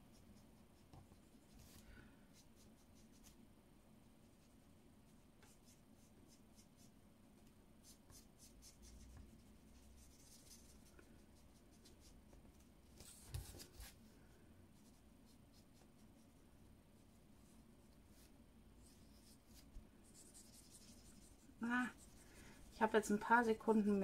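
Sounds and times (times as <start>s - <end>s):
marker scratching on paper: 18.1s - 24.0s.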